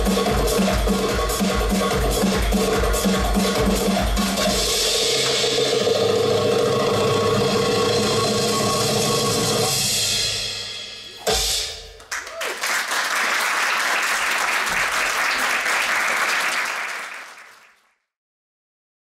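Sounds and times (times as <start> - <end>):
dance music: 0.0 - 8.2
audience applauding: 12.0 - 17.9.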